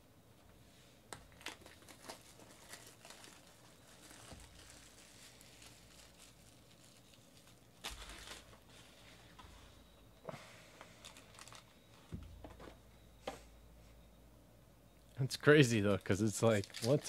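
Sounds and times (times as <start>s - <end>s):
plastic wrapper crinkling: 1.2s - 8.8s, 11.0s - 11.8s, 16.0s - 17.0s.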